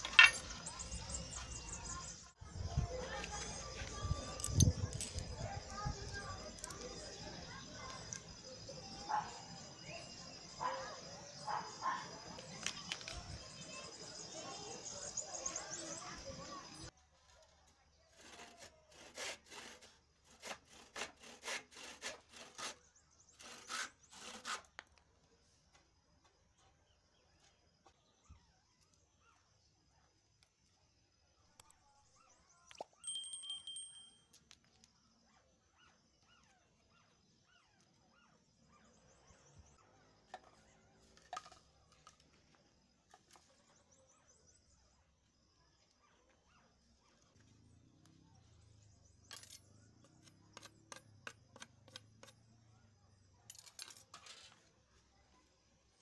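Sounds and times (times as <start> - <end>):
wooden scraping: 0.0 - 1.5, 18.1 - 24.9
wood squeaking on wood: 18.2 - 24.9.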